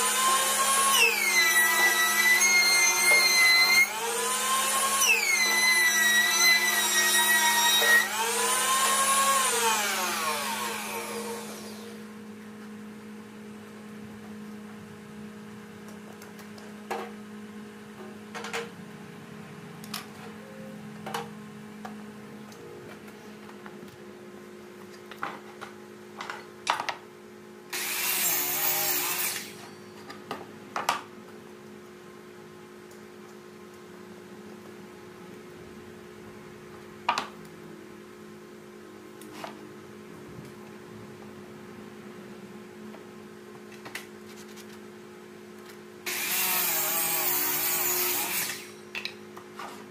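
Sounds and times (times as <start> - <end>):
power tool motor whining: 0.0 - 12.0
steady machine hum: 6.2 - 26.2.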